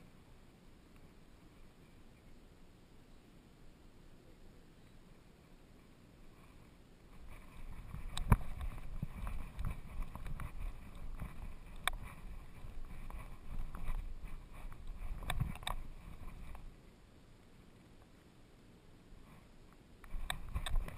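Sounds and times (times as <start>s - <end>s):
rumbling and rubbing noise: 6.3s - 16.8s, 20.1s - 20.9s
sharp clicks and knocks: 20.0s - 20.9s.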